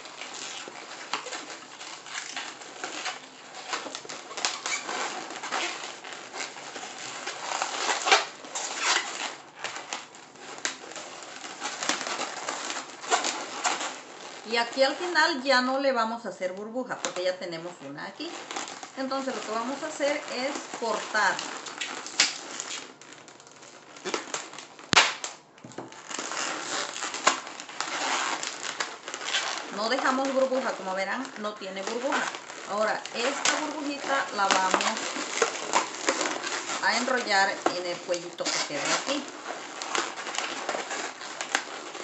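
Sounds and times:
balloons rubbing and squeaking: 0.0 - 42.0.

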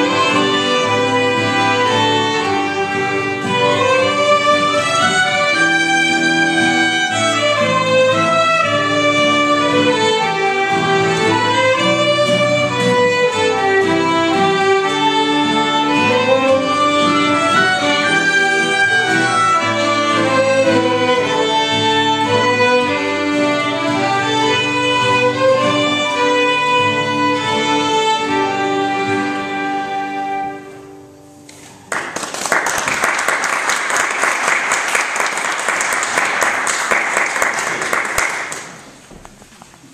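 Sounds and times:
folk waltz on fiddle flutes accordion: 0.0 - 31.0
audience applauding: 31.5 - 39.0.

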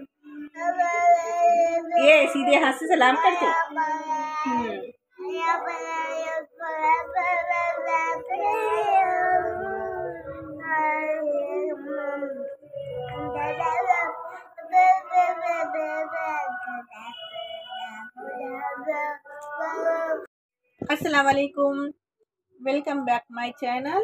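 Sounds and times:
boy singing high notes: 3.2 - 20.3.

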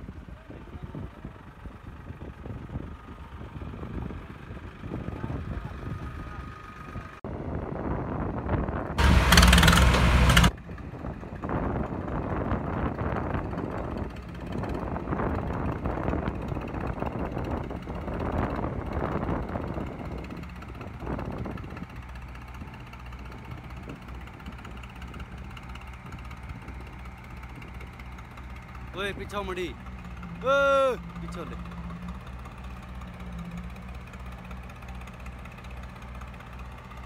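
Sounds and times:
tractor engines labouring: 0.0 - 37.0
loud rough engine blast: 8.9 - 10.6, 23.8 - 36.8.

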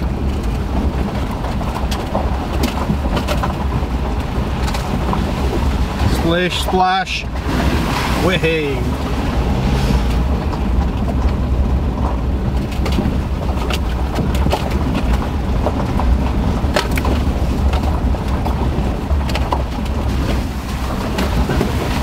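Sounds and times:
sharp clicks and knocks: 0.0 - 7.0, 10.3 - 20.4
engine and tyres droning: 0.0 - 22.0.

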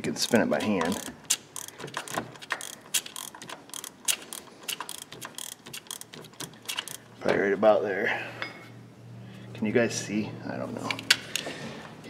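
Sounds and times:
ratchet clicking: 0.0 - 7.1.

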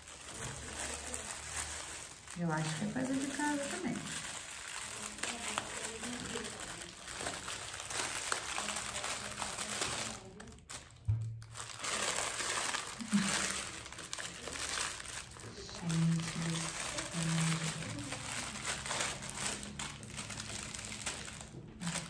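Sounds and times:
wrapping paper crinkling: 0.0 - 22.0.

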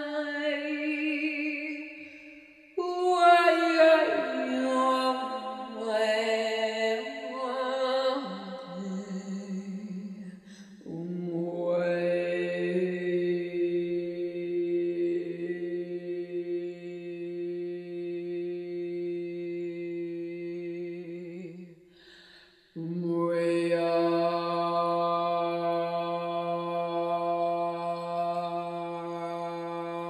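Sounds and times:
woman chanting long tones: 0.0 - 21.7, 22.8 - 30.0
woman breathing: 10.4 - 10.9, 21.8 - 22.8.

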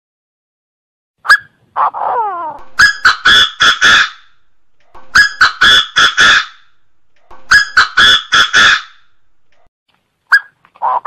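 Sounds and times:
francolin calling harsh notes: 2.2 - 9.3.

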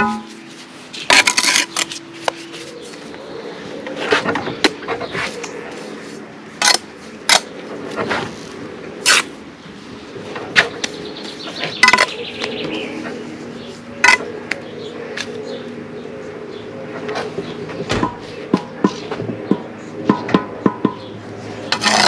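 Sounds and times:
trowel scraping and clinking: 0.0 - 2.6, 21.7 - 22.0
low hum: 0.0 - 22.0.

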